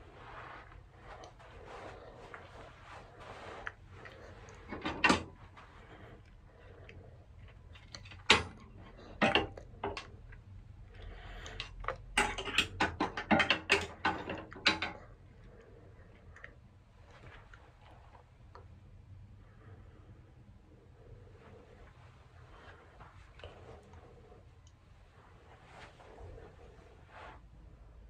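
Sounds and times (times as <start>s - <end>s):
wooden hangers clacking on metal hooks: 4.0s - 5.4s, 7.7s - 10.4s, 11.4s - 15.1s.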